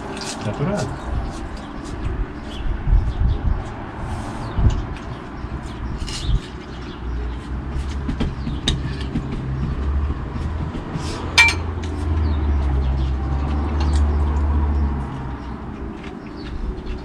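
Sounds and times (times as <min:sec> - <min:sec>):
low rumble of passing traffic: 0:00.0 - 0:17.0
sharp clink: 0:11.4 - 0:11.7
tableware clicking: 0:11.4 - 0:11.7.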